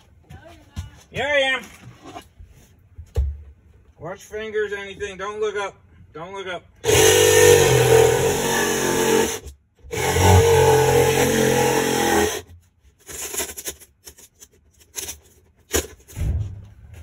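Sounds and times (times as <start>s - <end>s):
cordless drill driving into wood: 6.8s - 12.5s
handling sounds: 12.5s - 17.0s.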